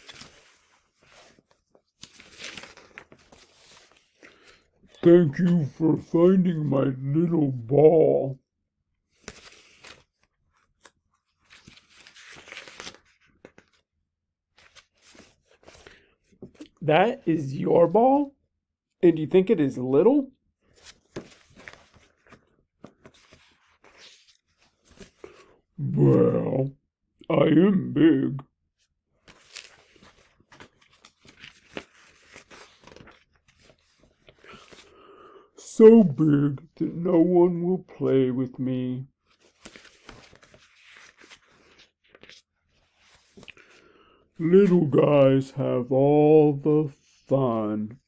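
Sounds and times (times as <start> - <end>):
paper crackle: 0.0 - 4.6, 9.1 - 13.8, 29.2 - 34.9, 39.3 - 43.7
book pages rustling: 0.0 - 5.6, 9.1 - 13.8, 14.5 - 16.8, 20.6 - 25.6, 29.2 - 34.9, 39.2 - 43.9.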